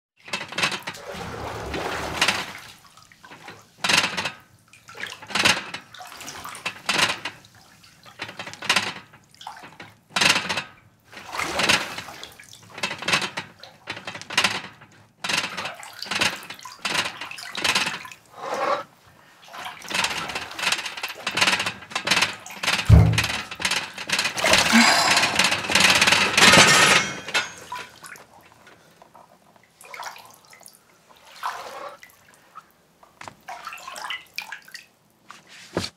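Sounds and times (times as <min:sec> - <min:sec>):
bathwater splashing in a tub: 0:00.9 - 0:03.7, 0:29.7 - 0:32.4, 0:33.4 - 0:34.9
low thud: 0:22.9 - 0:23.6.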